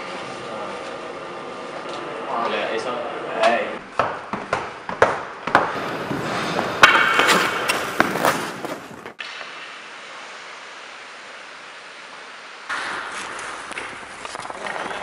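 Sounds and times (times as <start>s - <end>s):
hockey stick clacking: 4.0s - 9.3s
skate blades scraping ice: 5.7s - 9.2s, 12.8s - 15.0s.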